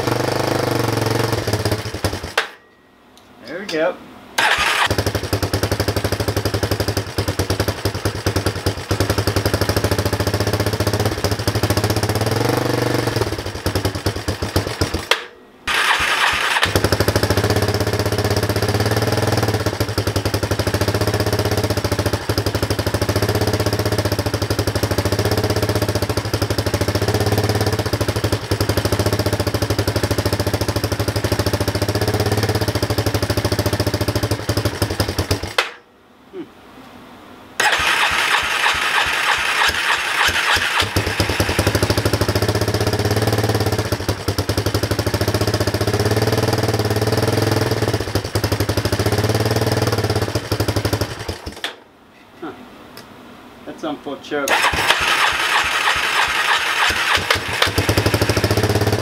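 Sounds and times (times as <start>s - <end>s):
electric starter cranking engine: 4.4s - 5.6s, 15.7s - 17.3s, 37.6s - 42.4s, 54.5s - 59.0s.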